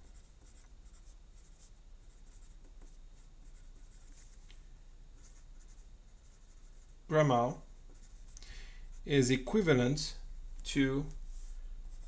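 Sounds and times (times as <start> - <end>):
pencil scratching on paper: 0.0 - 4.4, 5.2 - 6.9.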